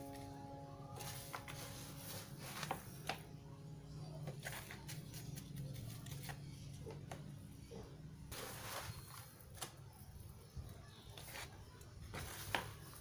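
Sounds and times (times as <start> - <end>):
plastic scoop scraping potting soil: 1.0 - 3.2, 8.3 - 9.7, 11.2 - 13.0.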